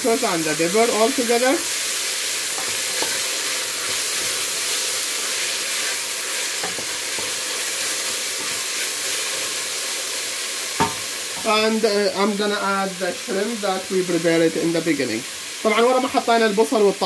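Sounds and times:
vegetables sizzling in oil: 0.0s - 17.0s
wooden spoon knocking on pot: 10.8s - 11.1s.

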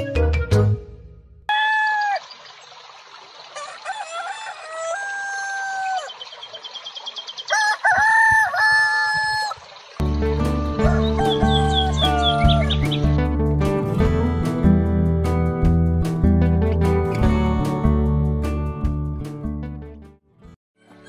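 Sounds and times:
music: 0.0s - 1.5s, 10.0s - 21.0s
rooster crowing: 1.5s - 2.3s, 3.5s - 6.2s, 7.5s - 9.6s, 10.8s - 12.8s
small birds chirping: 1.8s - 4.0s, 5.7s - 7.8s, 8.6s - 13.2s.

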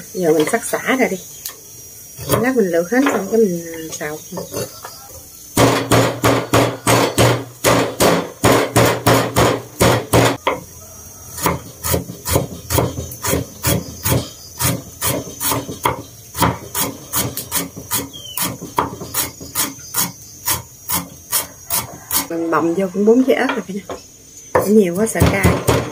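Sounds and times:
cleaver chopping on wooden board: 5.6s - 10.6s, 24.6s - 25.9s.

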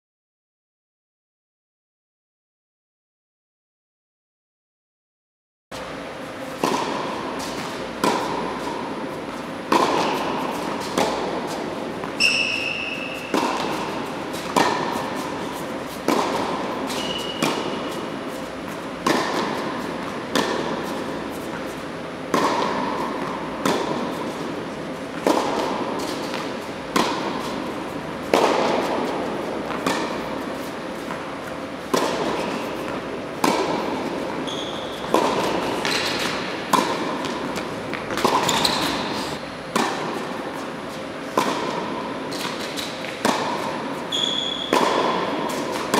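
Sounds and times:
tennis ball hit by racket: 6.6s - 40.7s, 41.3s - 45.9s
tennis ball bouncing on court: 6.6s - 45.9s
shoes squeaking on court: 7.3s - 21.9s, 25.8s - 33.1s, 33.7s - 39.4s, 42.3s - 45.9s.

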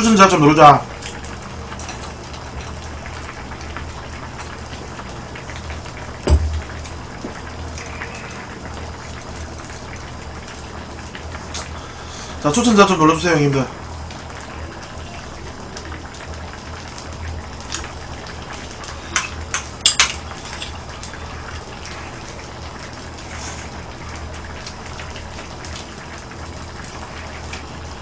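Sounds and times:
stew bubbling in a pan: 0.0s - 28.0s
metal spoon clinking on dishes: 19.2s - 20.7s.

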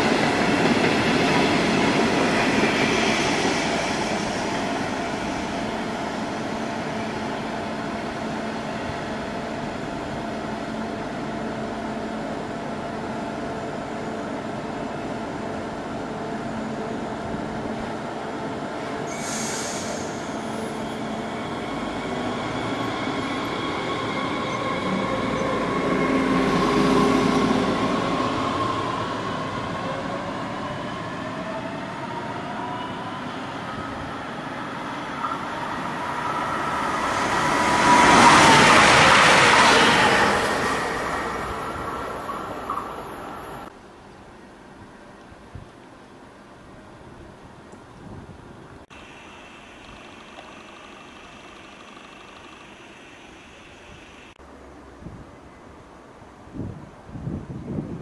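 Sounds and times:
brief hiss: 19.1s - 20.6s
electric train traction whine: 48.9s - 54.4s.

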